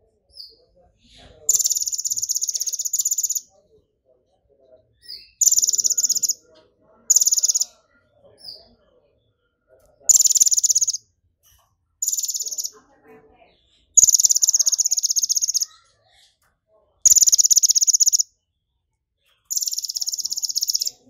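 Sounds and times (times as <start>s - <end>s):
bird singing buzzy trills: 1.5s - 3.5s, 5.0s - 6.4s, 7.1s - 7.7s, 10.1s - 11.0s, 12.0s - 12.8s, 14.0s - 15.8s, 17.0s - 18.3s, 19.5s - 21.0s.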